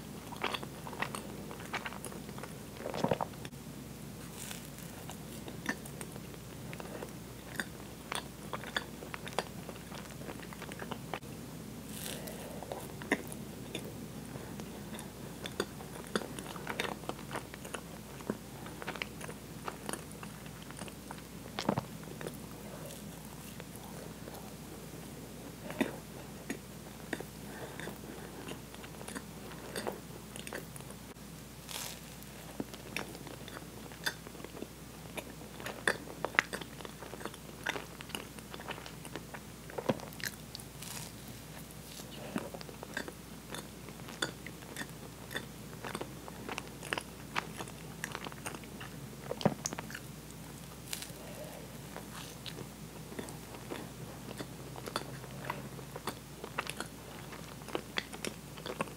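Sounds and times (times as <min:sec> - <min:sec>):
close chewing and mouth sounds: 0:00.0 - 0:03.6, 0:04.2 - 0:58.9.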